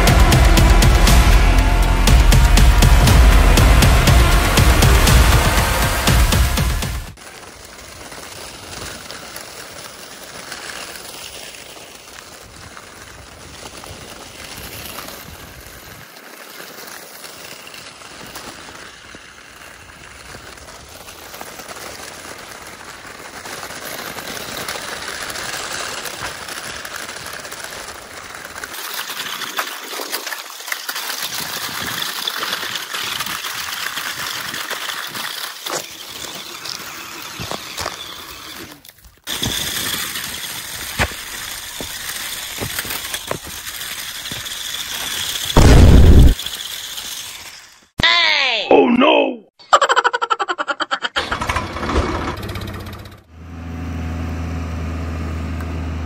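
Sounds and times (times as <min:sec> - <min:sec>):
stones and dirt rattling: 0:04.3 - 0:48.0
electric drives and gears whirring: 0:35.0 - 0:47.9, 0:51.2 - 0:56.0.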